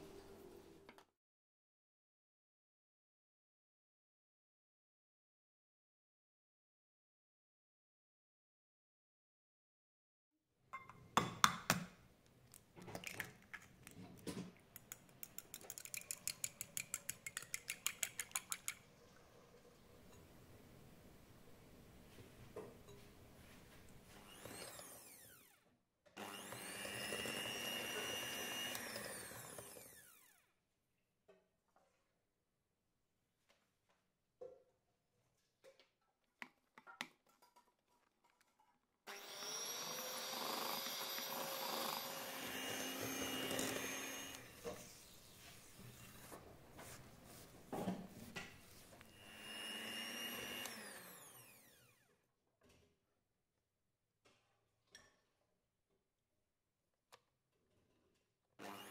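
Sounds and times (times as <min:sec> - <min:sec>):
electric hand mixer whining: 0:24.1 - 0:25.5, 0:26.2 - 0:30.4, 0:39.1 - 0:46.3, 0:49.0 - 0:52.1, 0:58.6 - 0:58.9.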